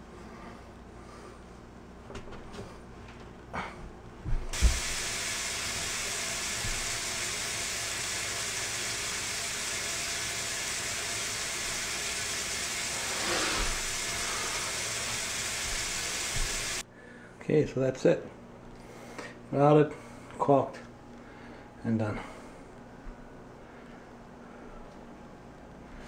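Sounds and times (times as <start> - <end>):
steady even hiss: 4.5 - 16.8.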